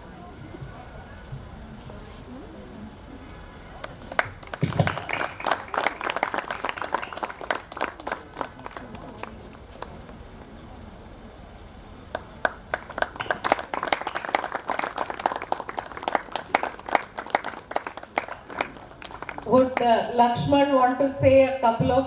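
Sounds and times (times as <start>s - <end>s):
audience clapping: 3.8s - 10.6s, 12.1s - 20.3s.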